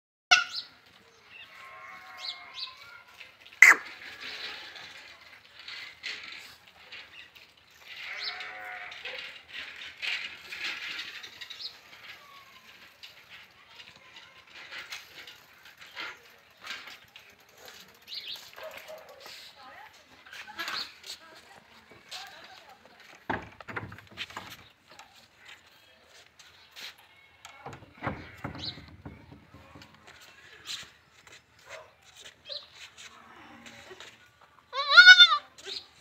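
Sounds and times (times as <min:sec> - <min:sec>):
goat kids bleating: 0:01.5 - 0:03.1, 0:08.0 - 0:09.0, 0:34.7 - 0:35.5
scuffling and light knocks: 0:28.2 - 0:34.7.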